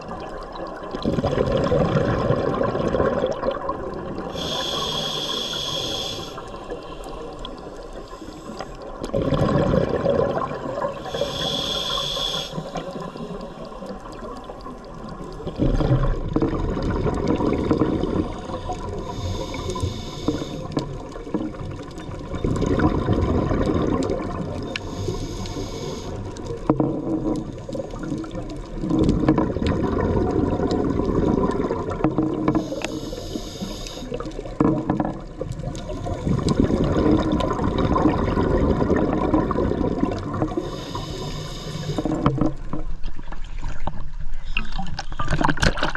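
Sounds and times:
exhaled bubbles: 0.0 - 45.9
regulator inhale hiss: 4.3 - 8.9, 10.9 - 13.9, 18.2 - 20.9, 24.7 - 26.6, 32.5 - 34.5, 40.5 - 42.2.

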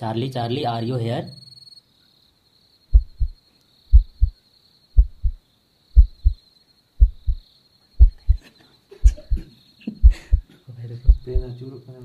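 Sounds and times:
faint crickets chirring: 0.0 - 12.0
heartbeat double thump: 2.9 - 4.4, 5.0 - 5.4, 6.0 - 6.4, 7.0 - 7.4, 8.0 - 8.4, 9.0 - 9.4, 10.0 - 10.5, 11.1 - 11.5.

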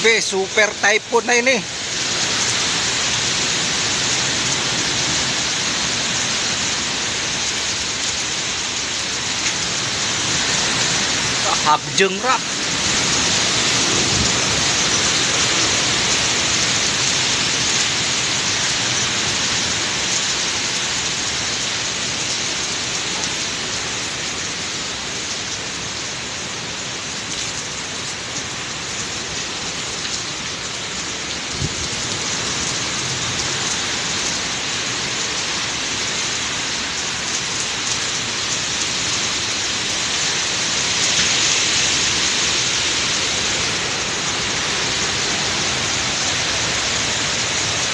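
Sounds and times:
heavy rain hissing: 0.0 - 47.9
strong wind: 12.4 - 25.0, 31.2 - 47.9.

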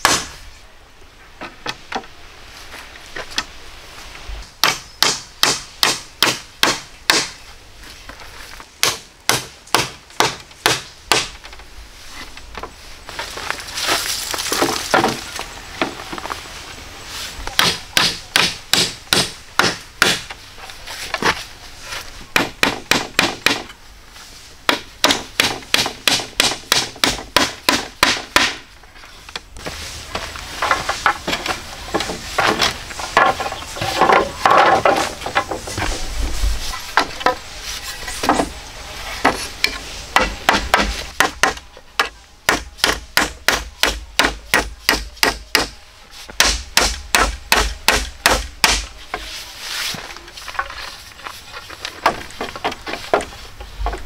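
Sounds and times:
tool striking wood: 0.0 - 0.4, 4.6 - 7.4, 8.8 - 11.4, 17.6 - 20.4, 24.7 - 28.6, 39.2 - 48.9.

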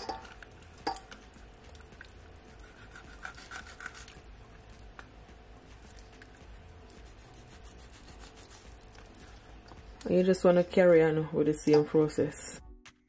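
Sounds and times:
knife scraping through fish skin: 2.6 - 4.2, 6.9 - 8.8.

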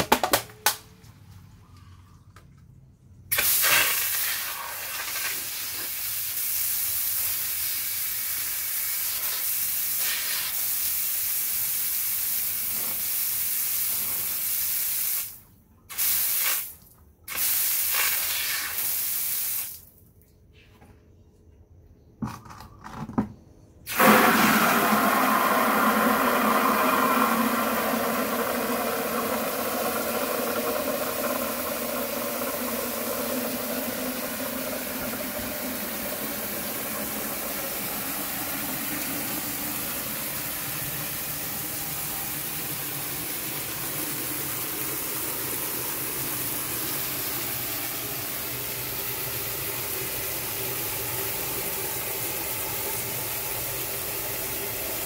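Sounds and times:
tap water pouring into bucket: 3.3 - 5.9, 23.9 - 55.0.

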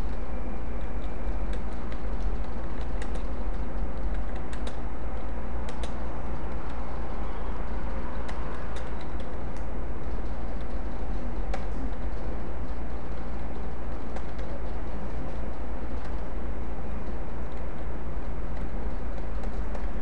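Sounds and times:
low hum and hiss: 0.0 - 20.0
keyboard keys clicking: 0.8 - 6.8.

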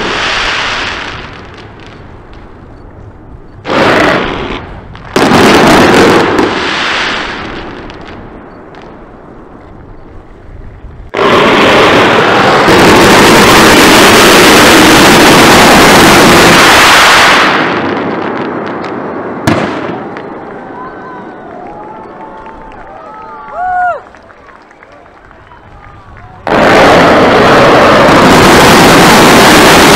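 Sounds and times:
fireworks barrage: 0.0 - 22.6, 25.2 - 29.9
fireworks bangs: 0.0 - 29.9.

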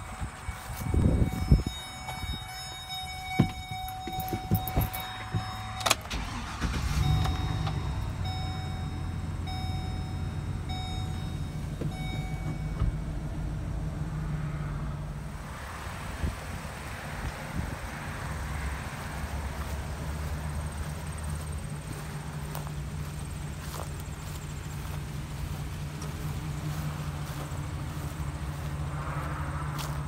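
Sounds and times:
warning chime: 0.0 - 13.2
van engine starting and idling: 0.0 - 29.0
van door opening: 1.0 - 8.2.

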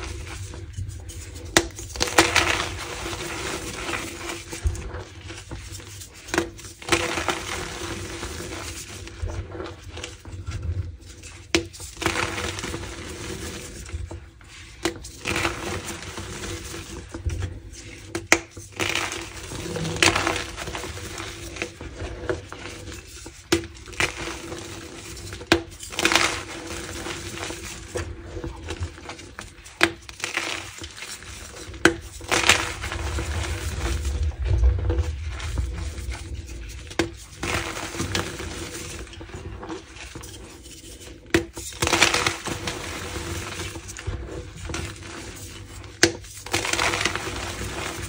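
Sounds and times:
chalk snapping and crumbling: 0.0 - 5.5, 17.8 - 21.8, 22.5 - 48.0.

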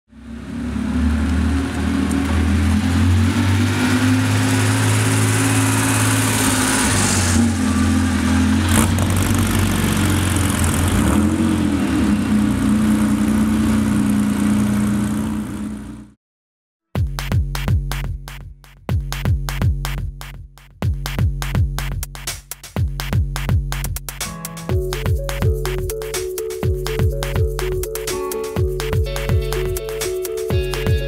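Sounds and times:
car engine running: 0.1 - 16.2, 24.7 - 31.0.

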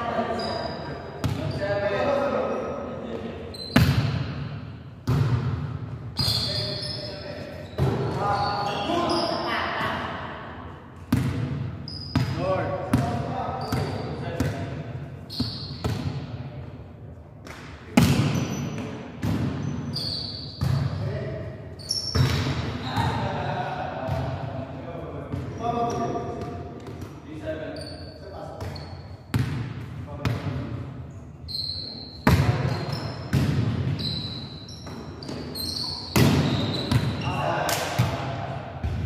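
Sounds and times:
sneaker squeaks on court floor: 0.3 - 1.8, 3.5 - 4.2, 6.2 - 9.5, 11.8 - 12.5, 13.5 - 14.5, 15.3 - 16.1, 18.0 - 19.0, 19.6 - 21.0, 21.8 - 23.2, 27.7 - 29.5, 31.4 - 37.5
volleyball being struck: 36.1 - 37.1.

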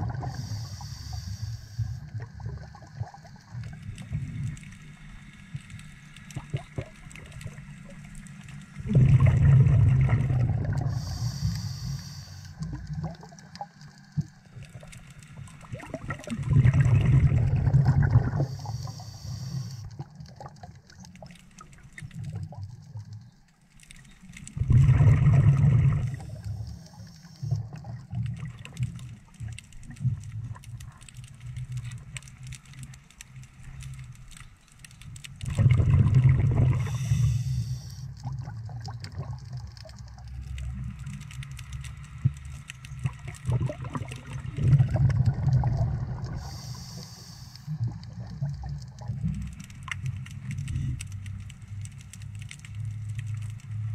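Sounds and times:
exhaled air bubbling underwater: 0.0 - 53.9
regulator inhalation hiss: 0.2 - 2.0, 10.9 - 12.6, 18.4 - 19.9, 36.8 - 38.1, 46.4 - 47.8.

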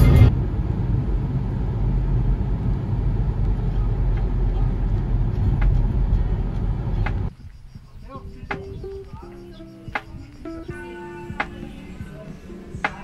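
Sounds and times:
car road and engine rumble: 0.0 - 7.3.

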